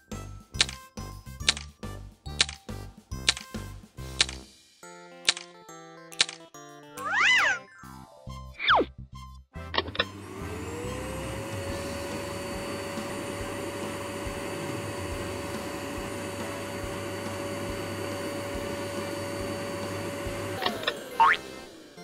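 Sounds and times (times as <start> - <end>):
handheld vacuum cleaner: 9.8 - 22.0.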